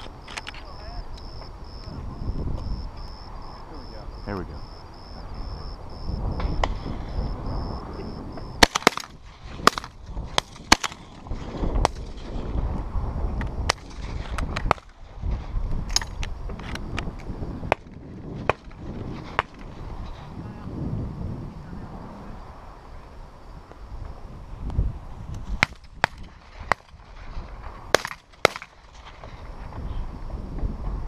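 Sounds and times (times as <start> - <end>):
sharp clicks and cracks: 0.0 - 1.4, 8.6 - 11.2, 13.4 - 15.0, 15.8 - 19.7, 25.3 - 29.4
wind buffeting microphone: 0.0 - 31.0.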